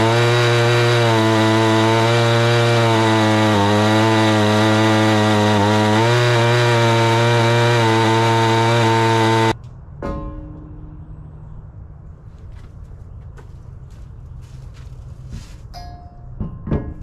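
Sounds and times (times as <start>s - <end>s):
chainsaw cutting log: 0.0s - 9.6s.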